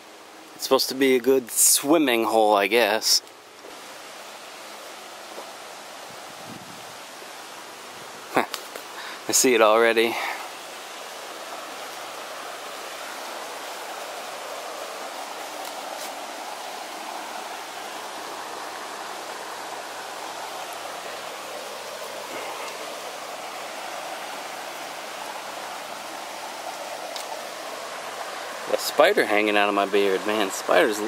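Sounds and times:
shallow river rushing over rocks: 0.0s - 31.0s.

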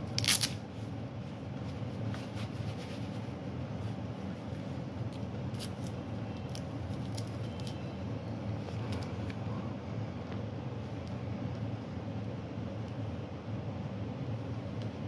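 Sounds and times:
steady low hum: 0.0s - 15.0s
velcro strap ripping: 0.1s - 0.6s.

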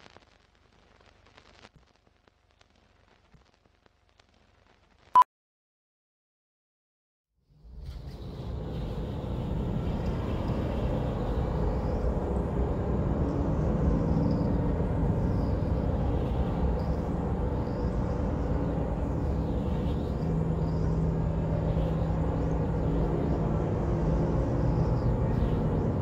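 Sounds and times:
low rumbling drone: 7.6s - 26.0s.

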